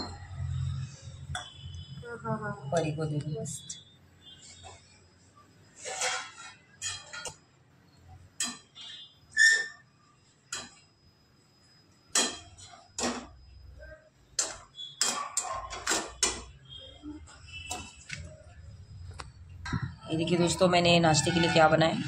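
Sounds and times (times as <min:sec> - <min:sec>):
spatula scraping and clinking on pan: 0:05.7 - 0:07.4.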